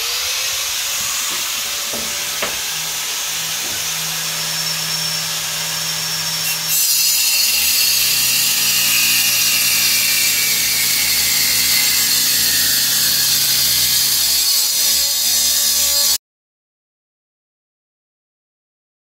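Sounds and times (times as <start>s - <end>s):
angle grinder cutting metal: 0.0s - 16.2s.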